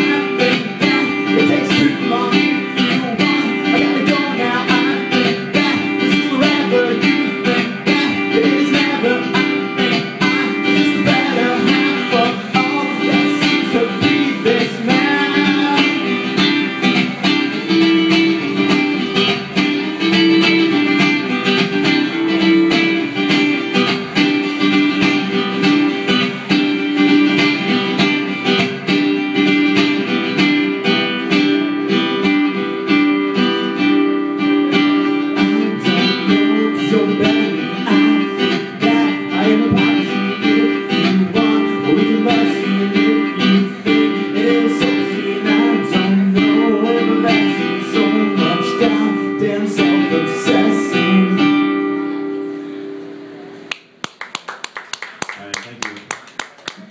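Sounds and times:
man singing: 0:00.0 - 0:25.6, 0:34.4 - 0:52.0
classical guitar chords: 0:00.0 - 0:54.0.

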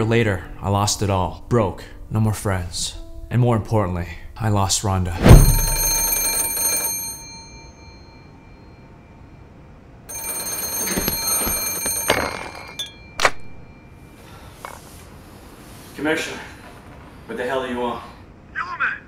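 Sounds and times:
telephone bell ringing: 0:05.3 - 0:09.0, 0:10.0 - 0:14.6.

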